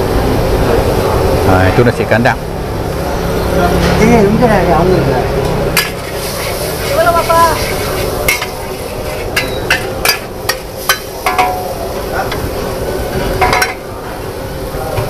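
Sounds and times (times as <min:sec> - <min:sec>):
frying sizzle: 0:00.0 - 0:15.0
metal spatula scraping a wok: 0:05.8 - 0:11.6.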